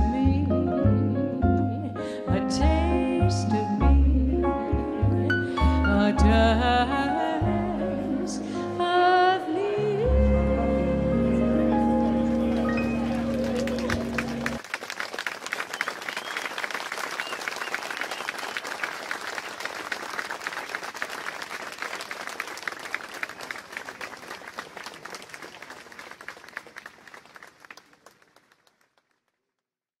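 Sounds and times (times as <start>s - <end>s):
audience applauding: 12.0s - 29.4s.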